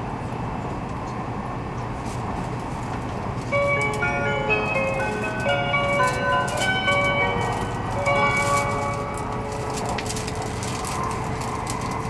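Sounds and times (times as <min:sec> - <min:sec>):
train rumbling: 0:00.0 - 0:12.0
bell-like announcement chime: 0:03.5 - 0:10.5.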